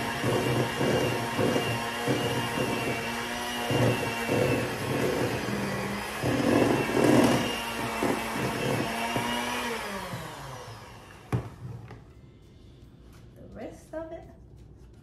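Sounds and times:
electric hand mixer running: 0:00.0 - 0:12.0.

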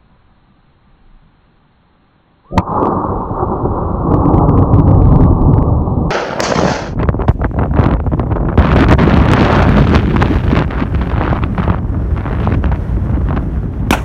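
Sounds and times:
wind buffeting microphone: 0:03.0 - 0:14.0
loud gunshot: 0:06.1 - 0:07.0.

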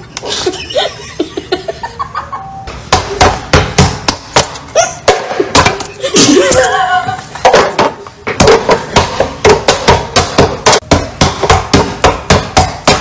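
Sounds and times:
children laughing: 0:00.0 - 0:02.7, 0:04.7 - 0:08.3
rapid sharp knocks: 0:07.8 - 0:13.0.

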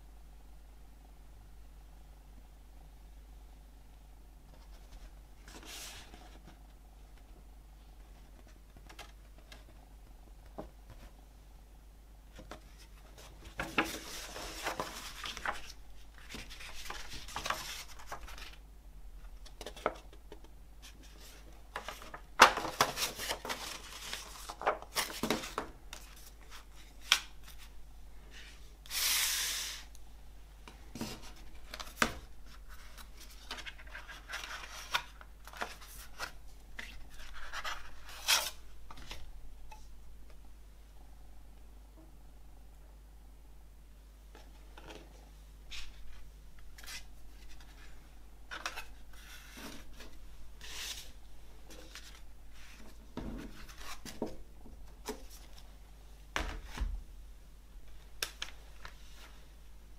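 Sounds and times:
paper rustling and crinkling: 0:12.4 - 0:18.6, 0:20.8 - 0:27.7, 0:30.9 - 0:39.3, 0:45.7 - 0:55.7.

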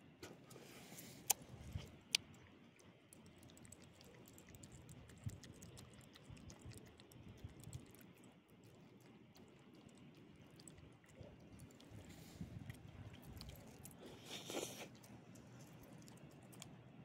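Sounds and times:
dog chewing and licking: 0:01.5 - 0:17.0.

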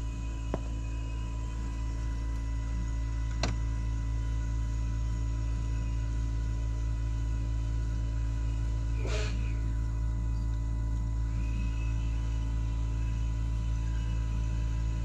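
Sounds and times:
heat pump humming and whining: 0:00.0 - 0:15.0.

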